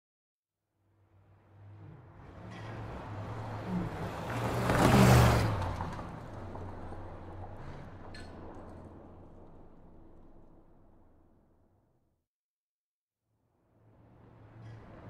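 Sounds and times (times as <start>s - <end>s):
car speeding past: 1.2s - 11.1s.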